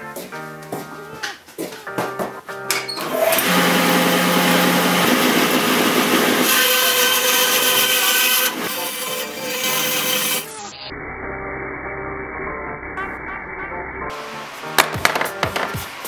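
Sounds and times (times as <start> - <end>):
bandsaw cutting wood: 3.0 - 10.7.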